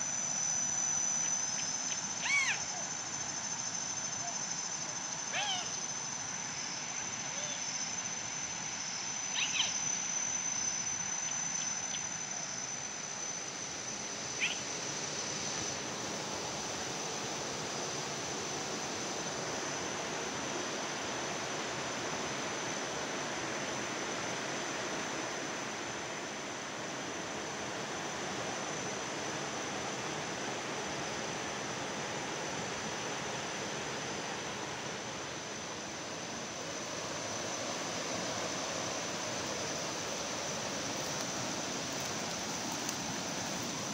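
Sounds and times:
high-pitched insect drone: 0:00.0 - 0:43.9.

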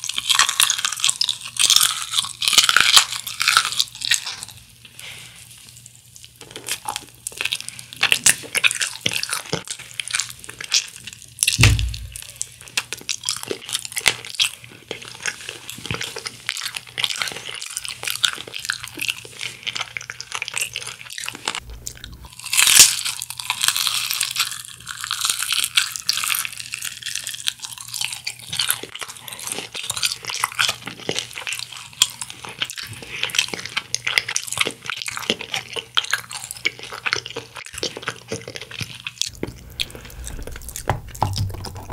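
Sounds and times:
crunching and chewing fried chicken: 0:00.0 - 0:41.9
dull thumps: 0:11.6 - 0:12.3, 0:39.4 - 0:41.9.

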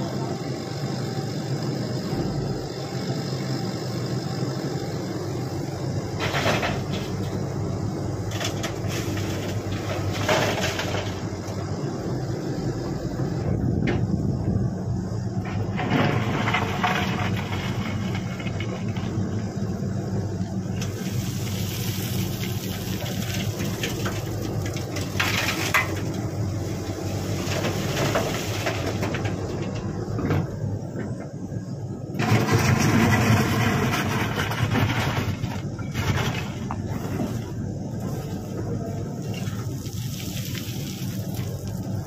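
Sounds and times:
excavator diesel engine: 0:00.0 - 0:42.0
earth and stones spilling into metal bed: 0:06.2 - 0:07.5, 0:08.2 - 0:11.4, 0:15.6 - 0:19.1, 0:20.8 - 0:29.6, 0:32.2 - 0:38.5, 0:39.2 - 0:41.7.

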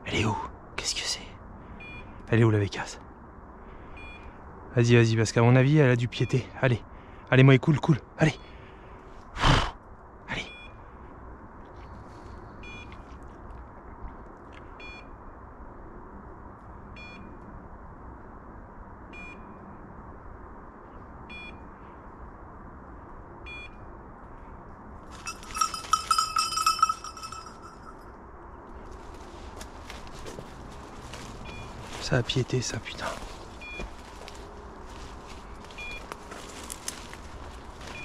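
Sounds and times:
loud ringing: 0:25.2 - 0:28.0.

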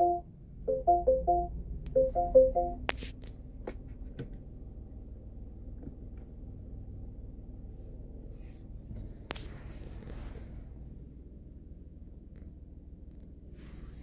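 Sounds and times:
car cabin hum: 0:00.0 - 0:05.0.

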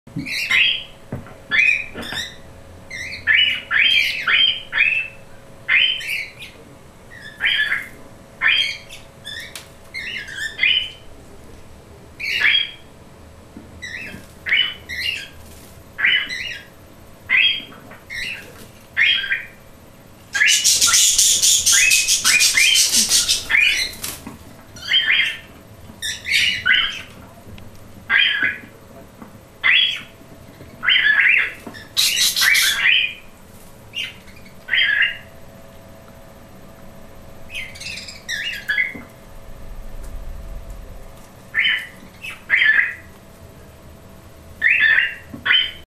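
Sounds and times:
birds squawking and chirping: 0:00.2 - 0:11.0, 0:12.2 - 0:12.9, 0:13.8 - 0:19.6, 0:20.3 - 0:27.2, 0:29.6 - 0:35.3, 0:37.5 - 0:39.1, 0:41.5 - 0:43.1, 0:44.6 - 0:45.8
wings flapping: 0:20.4 - 0:24.6, 0:31.5 - 0:33.8.

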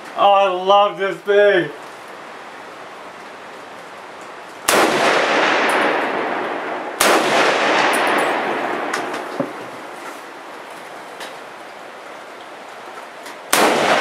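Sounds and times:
rifle shots echoing: 0:04.6 - 0:10.0, 0:13.5 - 0:14.0.

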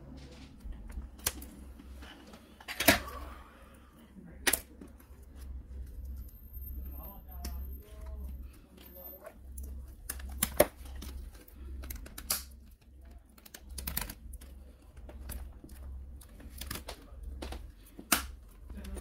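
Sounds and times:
steady low hum: 0:00.0 - 0:19.0
plastic clicks and snaps: 0:00.8 - 0:01.5, 0:04.4 - 0:04.9, 0:09.6 - 0:19.0.

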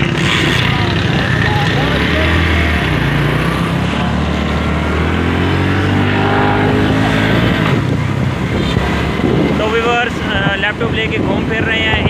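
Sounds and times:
small motorcycle engine: 0:00.0 - 0:08.2
steady rushing noise: 0:00.0 - 0:12.0.

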